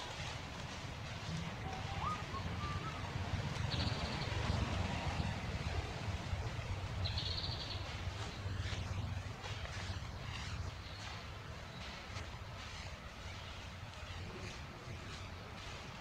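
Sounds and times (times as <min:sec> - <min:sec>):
steady low rumble: 0:00.0 - 0:16.0
faint whistled bird calls: 0:01.6 - 0:04.3.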